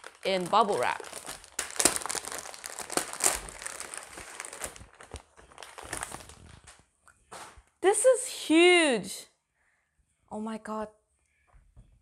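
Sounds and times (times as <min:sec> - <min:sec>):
bubble wrap crinkling and crackling: 0:00.0 - 0:07.7.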